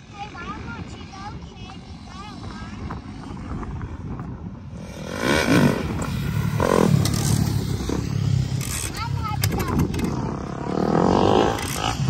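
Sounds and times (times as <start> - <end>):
dirt bike engine revving: 4.7 - 12.0.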